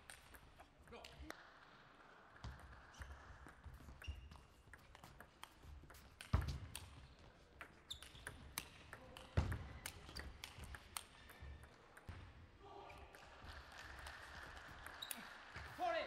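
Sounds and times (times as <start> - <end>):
table tennis ball clicking: 2.5 - 12.2.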